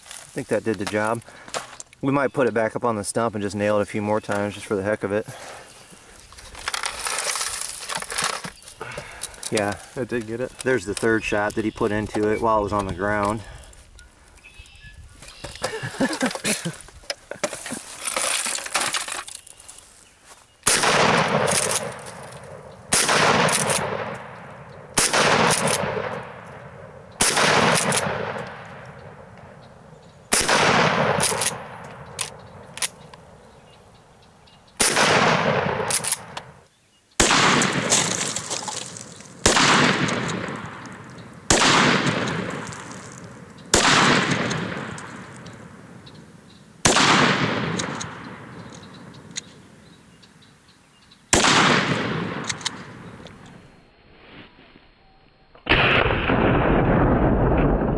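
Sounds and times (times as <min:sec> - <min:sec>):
shotgun shots echoing: 0:20.6 - 0:29.6, 0:30.3 - 0:33.0, 0:34.8 - 0:36.6, 0:37.2 - 0:46.0, 0:46.8 - 0:49.1, 0:51.3 - 0:53.2, 0:55.7 - 0:57.9.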